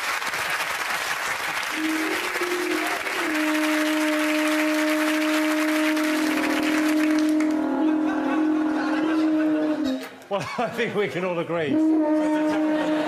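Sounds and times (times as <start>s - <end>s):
audience applause: 0.0s - 9.8s
alpine horn long notes: 1.7s - 10.2s, 11.7s - 13.0s.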